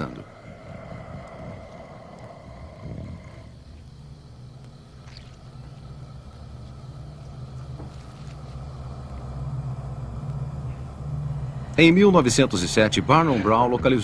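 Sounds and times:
low droning hum: 0:00.0 - 0:14.0.

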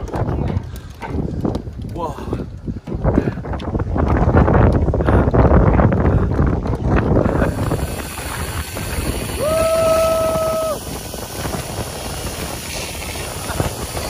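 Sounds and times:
wind blowing on microphone: 0:00.0 - 0:14.0
man yelling: 0:09.4 - 0:10.8.

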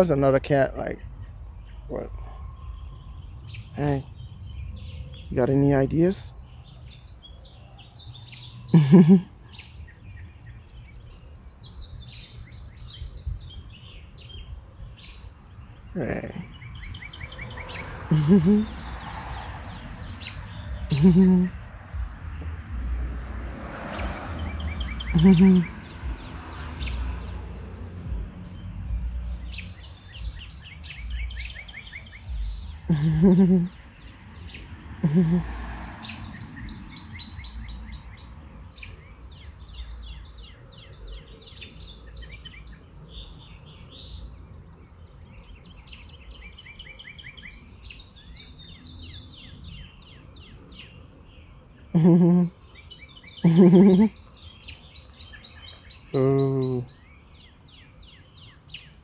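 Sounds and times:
songbirds chirping and trilling: 0:00.0 - 0:59.0
loud low vocal sounds: 0:56.1 - 0:56.9.

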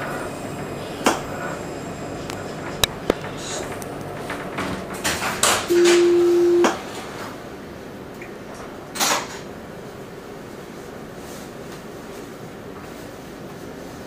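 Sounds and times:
electronic beep: 0:05.7 - 0:06.7.

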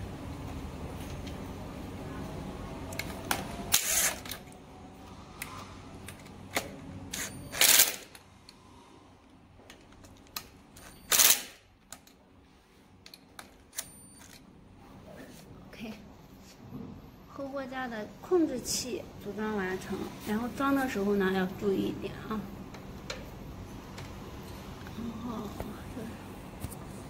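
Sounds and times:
tool and parts clicking: 0:02.9 - 0:04.6, 0:05.4 - 0:08.2, 0:09.7 - 0:12.2
power driver driving screws: 0:03.7 - 0:04.4, 0:07.2 - 0:08.2.

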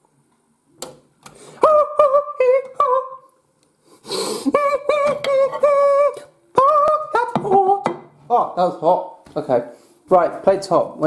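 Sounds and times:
man humming: 0:04.2 - 0:07.9.

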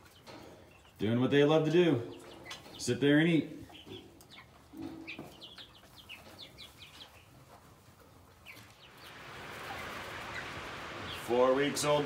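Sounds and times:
chicks peeping: 0:00.0 - 0:12.0
steady hiss: 0:08.6 - 0:12.0.

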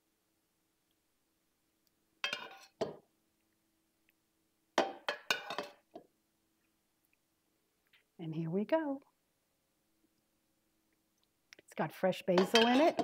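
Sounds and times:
metal ladle clinking against pot: 0:02.2 - 0:03.0, 0:04.8 - 0:05.8, 0:12.3 - 0:13.0.

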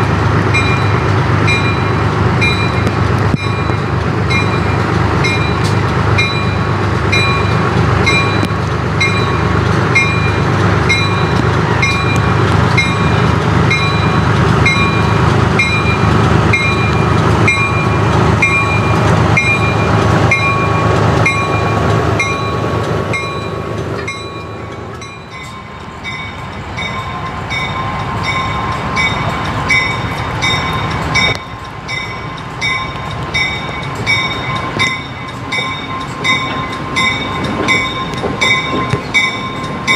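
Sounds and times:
diesel locomotive engine rumbling: 0:00.0 - 0:39.9
locomotive bell ringing: 0:00.0 - 0:39.9.

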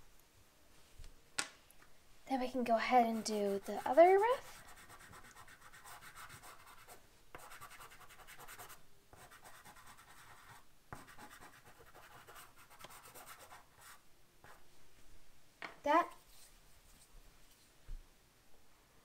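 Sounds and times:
chalk pastel scratching on paper: 0:03.0 - 0:14.6.

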